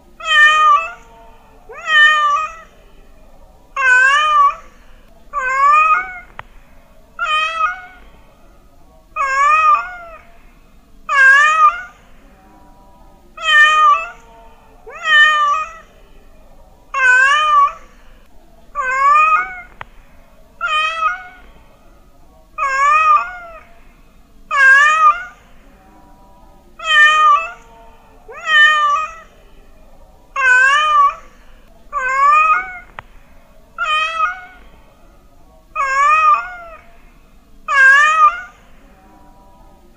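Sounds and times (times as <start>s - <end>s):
cat meowing: 0.2s - 1.1s, 1.7s - 2.7s, 3.8s - 4.8s, 5.4s - 6.4s, 7.2s - 8.1s, 9.2s - 10.3s, 11.1s - 12.0s, 13.4s - 14.3s, 14.9s - 15.9s, 17.0s - 17.9s, 18.8s - 19.9s, 20.6s - 21.5s, 22.6s - 23.7s, 24.5s - 25.5s, 26.8s - 27.7s, 28.3s - 29.3s, 30.4s - 31.2s, 31.9s - 33.0s, 33.8s - 34.7s, 35.8s - 36.8s, 37.7s - 38.6s.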